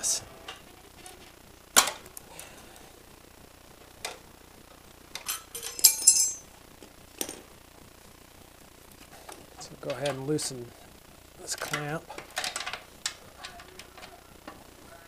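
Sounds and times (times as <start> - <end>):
metal tools clinking: 5.2 - 6.5.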